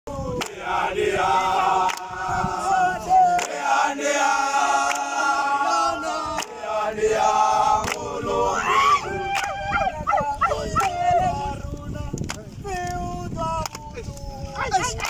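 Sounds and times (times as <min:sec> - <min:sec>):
men singing in harmony: 0:00.1 - 0:09.2.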